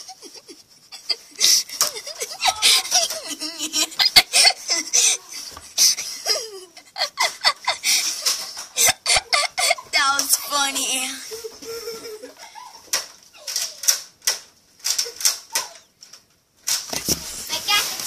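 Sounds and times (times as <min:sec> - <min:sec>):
children laughing: 0:00.0 - 0:14.0, 0:14.9 - 0:15.9.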